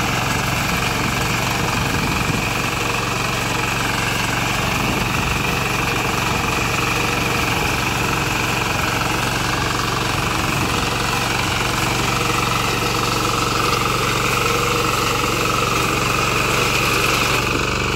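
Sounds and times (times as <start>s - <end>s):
small reaper engine running: 0.0s - 17.9s.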